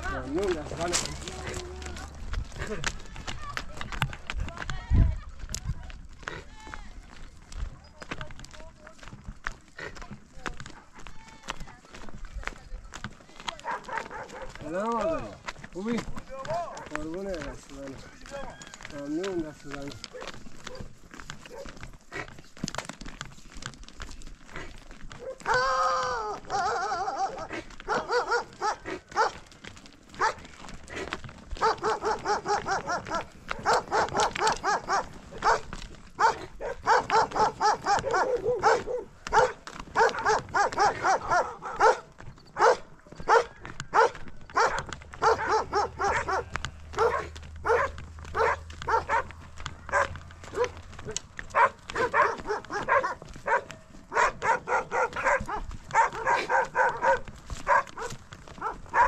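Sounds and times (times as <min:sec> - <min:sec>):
dog barking: 0:13.6 - 0:14.6, 0:21.5 - 0:21.8, 0:25.2 - 0:25.6, 0:26.5 - 0:29.4, 0:30.2 - 0:30.4, 0:31.6 - 0:49.3, 0:49.9 - 0:59.0.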